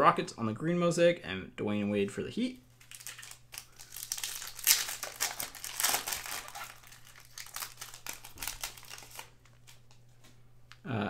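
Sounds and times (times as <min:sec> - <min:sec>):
foil wrapper crinkling: 0:02.8 - 0:10.1.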